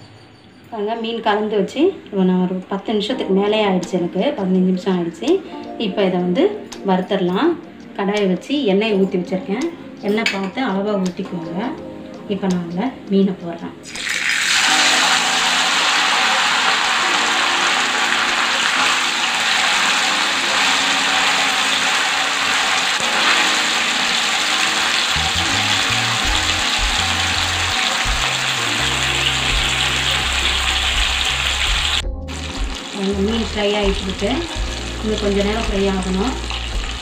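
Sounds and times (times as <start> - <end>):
fish deep-frying in oil: 13.9 - 37.0.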